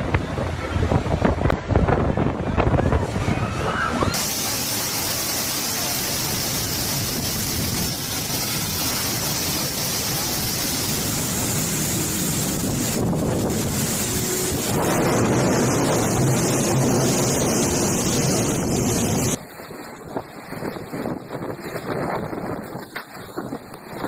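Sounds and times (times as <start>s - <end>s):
wind buffeting microphone: 0.0s - 24.0s
heavy rain hissing: 4.0s - 19.4s.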